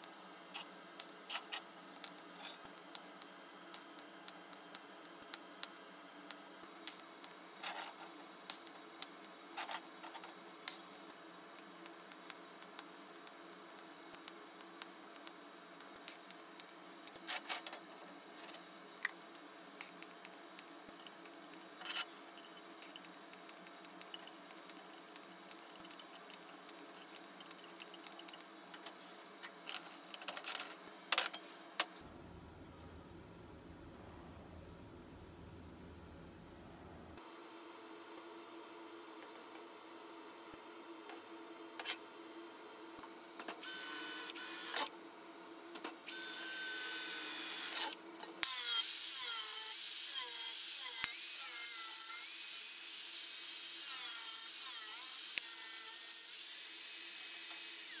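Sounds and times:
workshop hum: 0.0s - 58.0s
low rumble: 32.1s - 37.2s.

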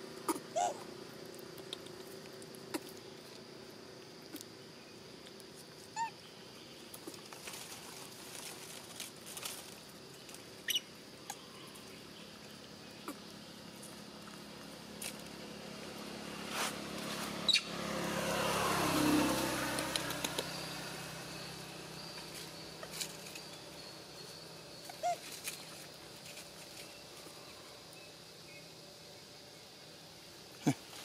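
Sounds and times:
outdoor background: 0.0s - 31.0s
vehicle engine passing by: 13.3s - 24.7s
small sharp clicks: 19.8s - 20.5s.

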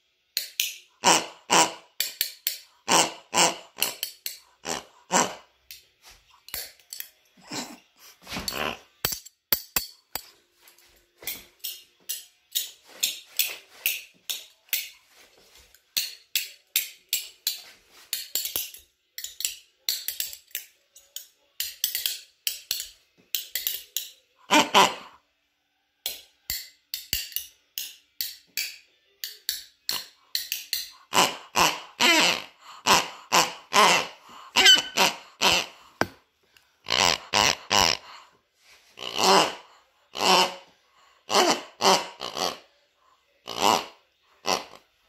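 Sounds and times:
spoons clacking rhythmically: 0.3s - 1.1s, 1.9s - 7.6s, 9.0s - 24.4s, 26.0s - 32.0s.

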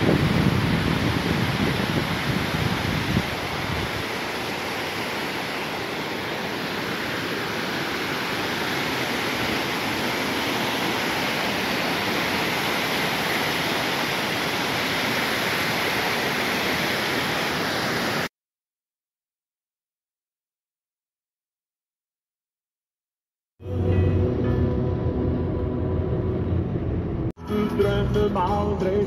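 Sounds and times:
waterfall roaring: 0.0s - 18.3s.

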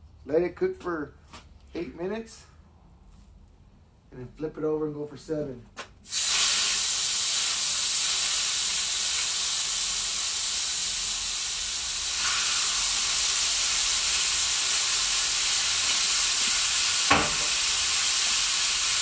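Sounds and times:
steaks sizzling on a griddle: 6.1s - 19.0s.

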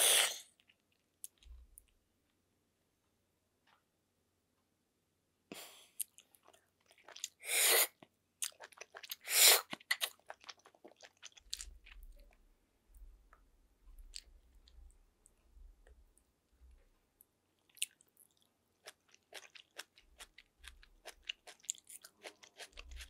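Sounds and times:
wet chewing and mouth smacks: 6.0s - 7.4s, 8.4s - 12.4s, 17.7s - 23.0s.

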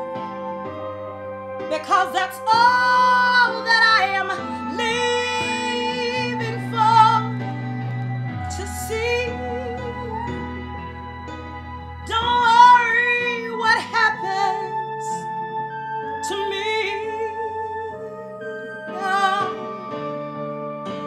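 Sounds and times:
sustained keyboard chords: 0.0s - 21.0s
woman singing with vibrato: 1.7s - 11.0s, 12.0s - 15.3s, 16.2s - 19.9s.

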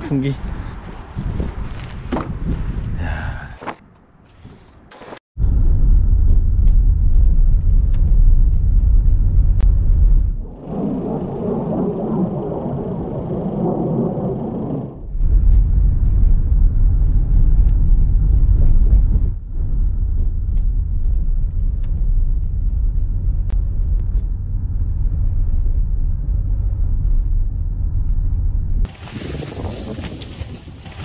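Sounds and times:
car driving rumble from cabin: 15.1s - 28.9s.

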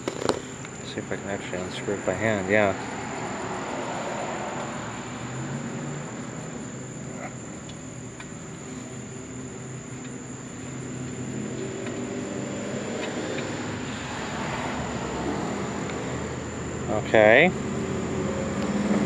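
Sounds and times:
constant high whine: 0.0s - 19.0s
insects chirring: 0.0s - 19.0s.

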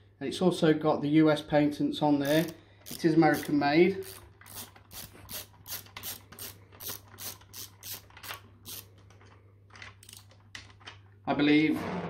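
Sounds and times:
hand ratchet clicking: 2.2s - 8.9s, 10.0s - 10.4s.

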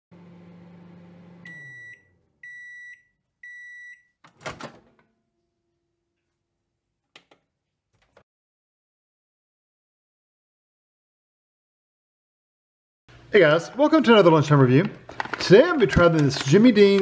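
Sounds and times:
microwave oven hum: 0.1s - 6.2s
microwave beeps: 1.2s - 4.2s.

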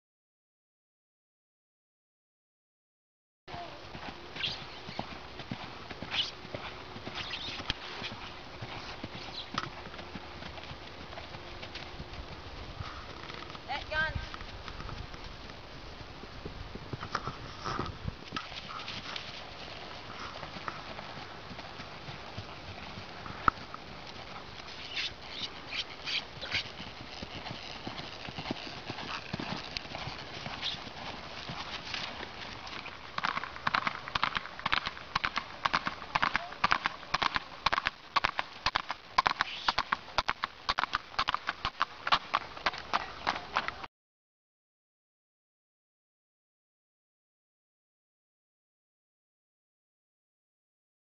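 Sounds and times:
horse hoofbeats on grass: 3.5s - 43.9s
short hissy noises: 24.7s - 26.7s.

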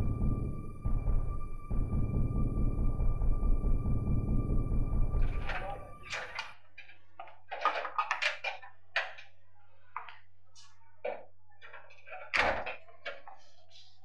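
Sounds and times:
low steady hum: 0.0s - 6.3s.

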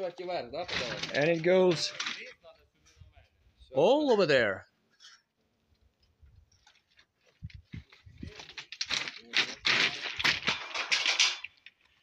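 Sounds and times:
crackling and rustling: 0.0s - 3.2s, 4.9s - 12.0s.

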